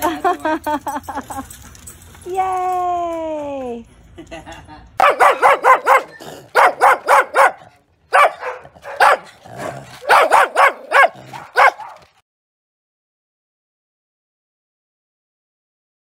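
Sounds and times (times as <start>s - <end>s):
small dog barking: 5.0s - 12.1s.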